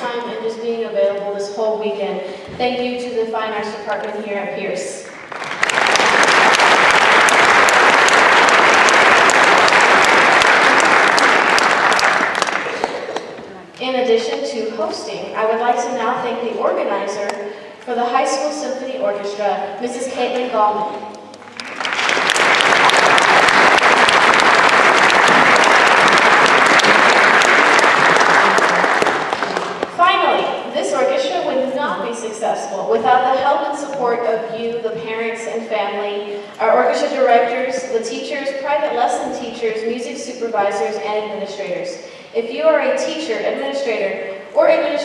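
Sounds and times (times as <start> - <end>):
audience applauding: 5.2 - 13.4, 21.3 - 30.0.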